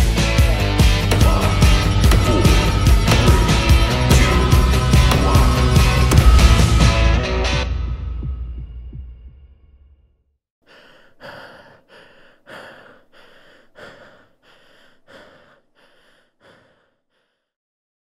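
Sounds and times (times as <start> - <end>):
woman panting heavily: 10.6 - 17.6.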